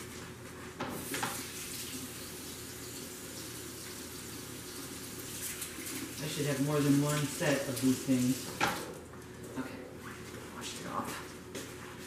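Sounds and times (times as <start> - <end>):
water running into sink: 1.0 - 9.0.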